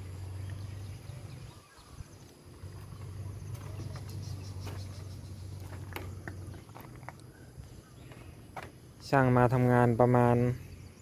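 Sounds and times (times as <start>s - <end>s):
faint insect chirring: 0.0s - 11.0s
steady low hum: 0.0s - 11.0s.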